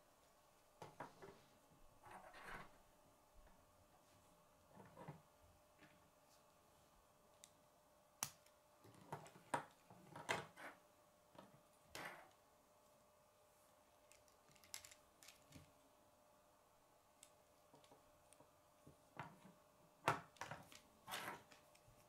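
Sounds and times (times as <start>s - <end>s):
plastic toy parts clicking: 14.1s - 15.6s.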